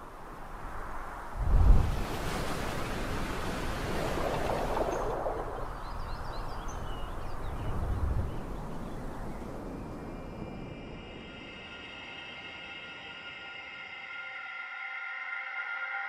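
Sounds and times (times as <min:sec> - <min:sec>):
rushing surf-like noise: 0:00.0 - 0:14.1
faint high chirps: 0:08.4 - 0:14.5.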